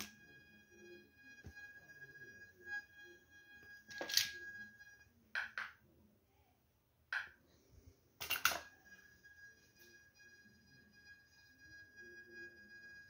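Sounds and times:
metal detector high tone: 0:00.0 - 0:05.2, 0:08.3 - 0:13.0.

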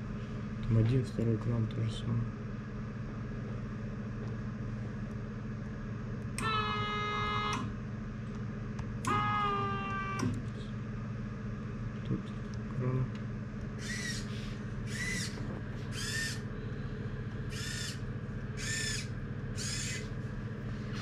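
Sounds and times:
steady low hum: 0:00.0 - 0:21.0
small motors running in bursts: 0:09.1 - 0:10.4, 0:13.8 - 0:16.5, 0:17.5 - 0:18.0, 0:18.6 - 0:20.1.

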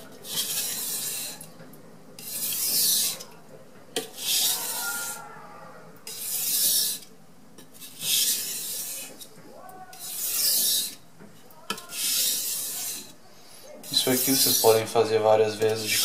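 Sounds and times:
knife scraping on whetstone: 0:00.2 - 0:01.5, 0:02.2 - 0:03.3, 0:04.0 - 0:05.2, 0:06.0 - 0:09.3, 0:09.9 - 0:11.0, 0:11.7 - 0:13.2, 0:13.8 - 0:14.8.

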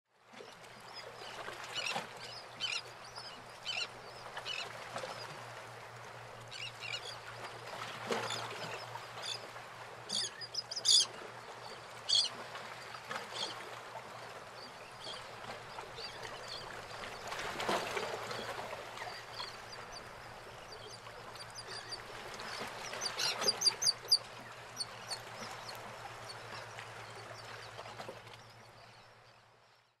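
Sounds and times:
bird calls: 0:10.1 - 0:11.1, 0:18.2 - 0:25.8.

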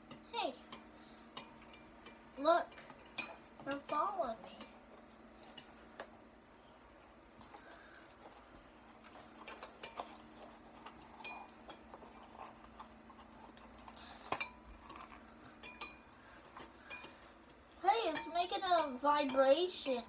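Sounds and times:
metal spoon clinking against glass: 0:14.4 - 0:16.1.

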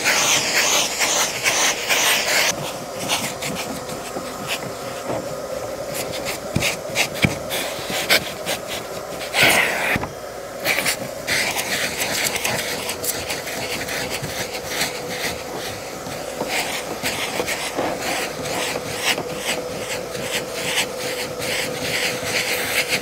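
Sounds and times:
nozzle scratching on carpet: 0:00.0 - 0:05.1, 0:10.6 - 0:23.0
vacuum cleaner humming: 0:00.0 - 0:23.0.

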